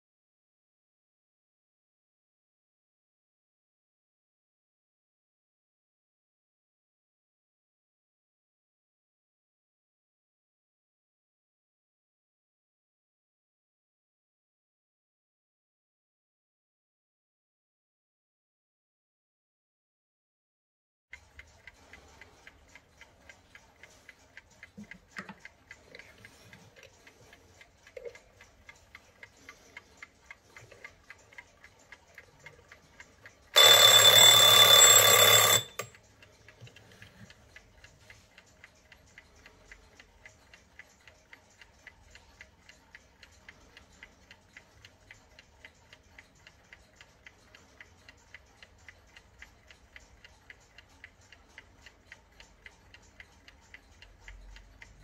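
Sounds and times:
alarm clock ticking: 21.1s - 55.0s
alarm bell ringing: 33.6s - 35.9s.

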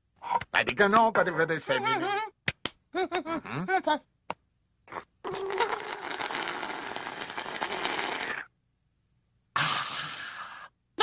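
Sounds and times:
slurping through a straw: 5.3s - 8.5s.

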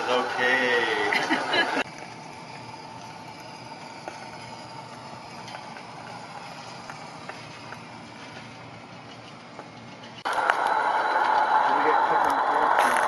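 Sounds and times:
steam locomotive hissing: 0.0s - 13.0s.

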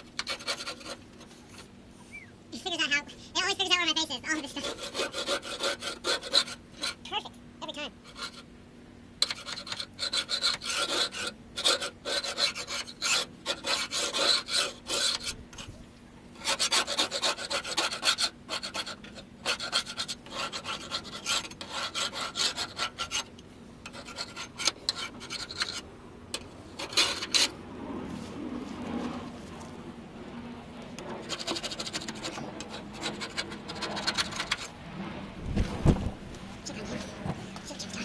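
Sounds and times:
hand scraper scraping metal: 0.0s - 1.7s, 4.3s - 7.0s, 8.0s - 8.5s, 9.2s - 15.7s, 16.4s - 27.6s, 31.0s - 34.7s.

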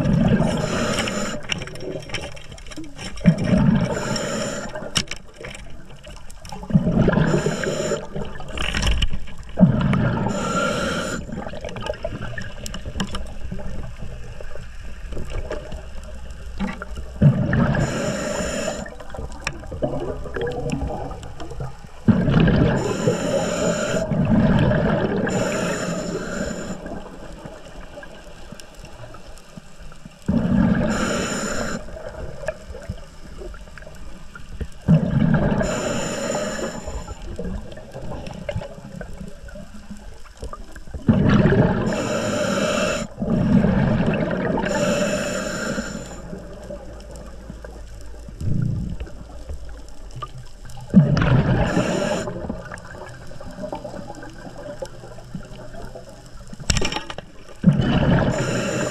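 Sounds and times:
water bubbling and rushing: 0.0s - 58.9s.

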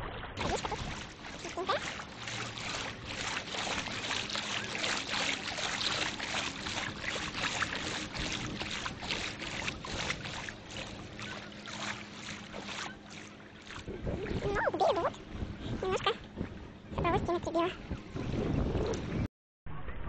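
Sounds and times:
water lapping at shoreline: 0.0s - 19.3s.

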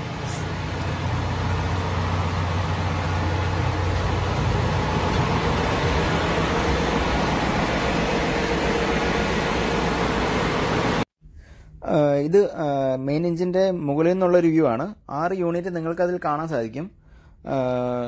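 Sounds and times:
engine room machinery din: 0.0s - 11.1s.

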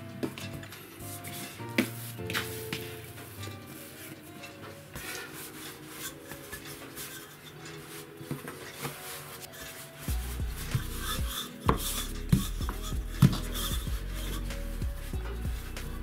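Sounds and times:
soft background music: 0.0s - 16.0s
rolling pin rumbling on dough: 9.7s - 16.0s.

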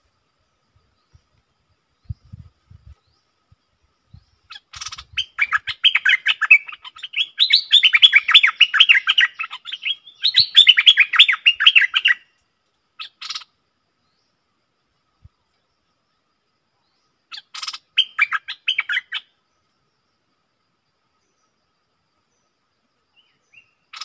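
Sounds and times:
bird rapid chirping song: 2.0s - 12.2s, 13.0s - 13.5s, 17.1s - 19.3s, 23.2s - 24.0s
bird harsh calls: 4.2s - 12.2s, 13.0s - 13.5s, 17.3s - 19.3s, 23.5s - 24.0s.

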